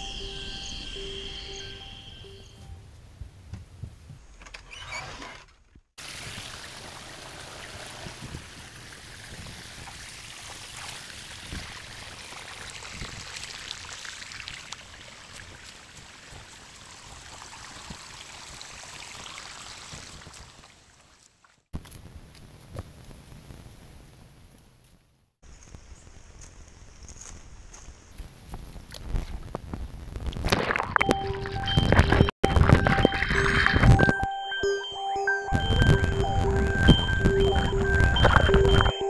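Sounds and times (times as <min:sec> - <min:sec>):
running water hiss: 0:06.0 - 0:21.0.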